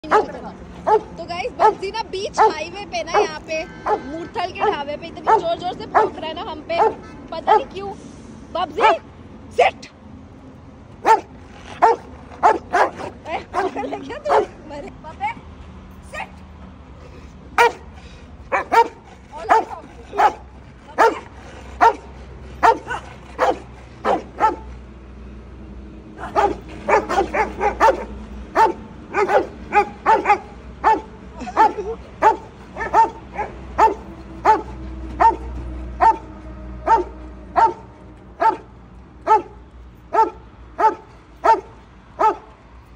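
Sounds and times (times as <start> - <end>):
dog barking deeply: 0.0 - 1.8, 2.4 - 6.2, 6.8 - 7.7, 11.0 - 14.6, 17.6 - 17.9, 18.5 - 24.7, 26.2 - 42.5.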